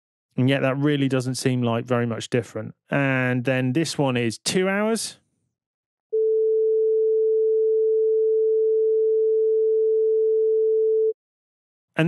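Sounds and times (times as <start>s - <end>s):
sine-wave test tone: 6.2s - 11.2s.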